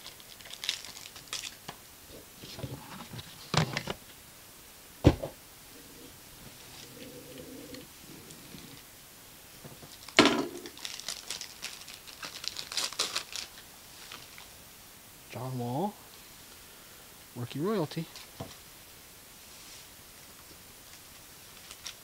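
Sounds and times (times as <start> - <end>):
foil wrapper ripping and crinkling: 0.0 - 1.7, 9.9 - 14.5, 20.9 - 22.0.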